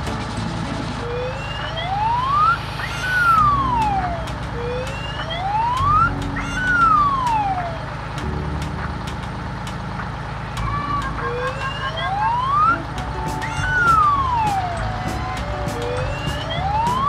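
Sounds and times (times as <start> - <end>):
low background music tones: 0.0 - 17.0
siren-like wail: 0.8 - 8.0, 10.6 - 17.0
ticking beat: 2.2 - 17.0.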